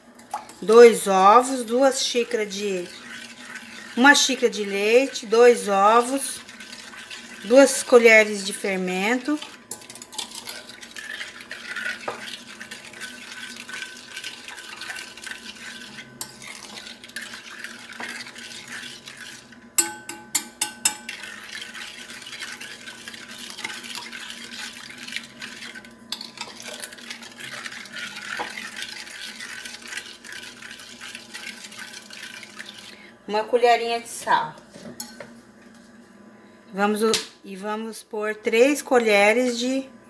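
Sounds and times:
metal spoon clinking glass bowl: 19.8 - 21.2.

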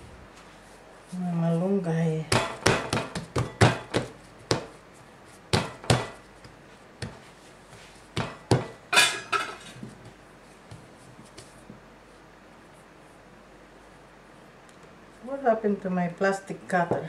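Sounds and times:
hands slapping dough: 2.3 - 4.8, 5.4 - 8.8, 9.8 - 11.8.

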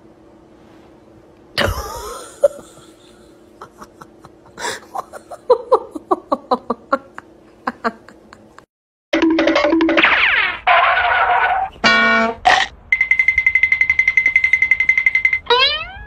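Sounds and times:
laughter in short bursts: 1.6 - 8.6.

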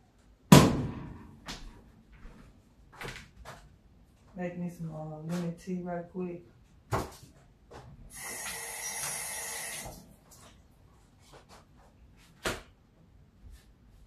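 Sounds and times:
water pouring: 8.1 - 10.6.

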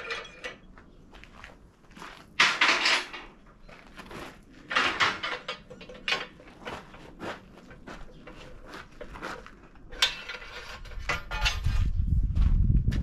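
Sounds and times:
tube bender metal clanks: 4.7 - 9.1, 9.8 - 11.9.

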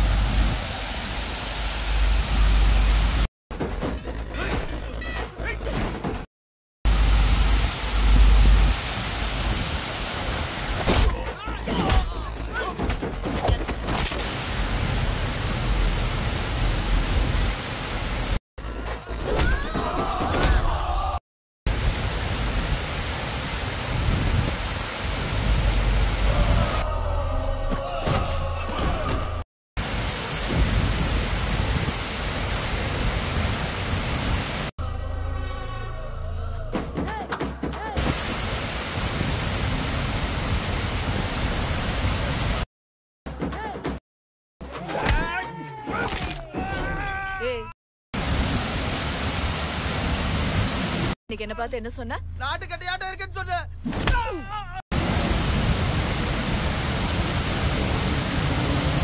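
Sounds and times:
loud hiss-like noise: 0.0 - 3.3, 6.9 - 10.8, 38.0 - 42.6, 55.0 - 59.0
water pouring down fountain: 6.9 - 10.8, 14.2 - 18.4, 29.8 - 34.7, 55.0 - 59.0.

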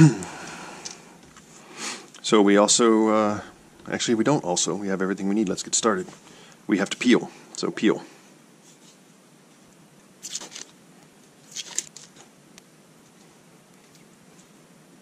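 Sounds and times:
paper masking tearing: 10.2 - 10.7, 11.5 - 12.2.

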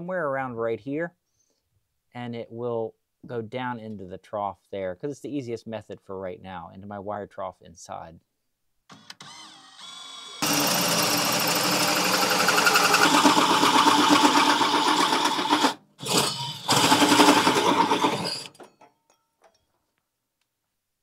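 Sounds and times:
hole saw grinding through sheet metal: 9.3 - 18.7.

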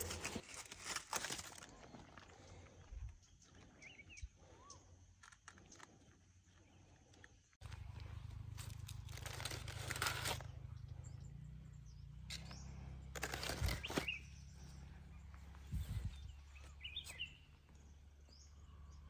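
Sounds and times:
bird chirp: 2.8 - 5.0, 5.6 - 19.0
leaves rustling: 7.6 - 11.0, 12.2 - 17.4
low microphone rumble: 7.6 - 19.0.

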